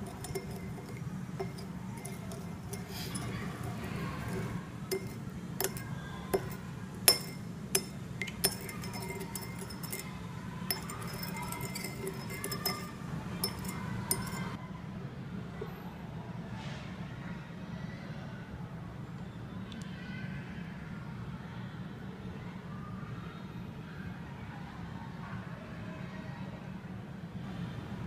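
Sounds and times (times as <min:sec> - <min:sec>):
metal spoon clinking against glass: 0:00.0 - 0:14.6.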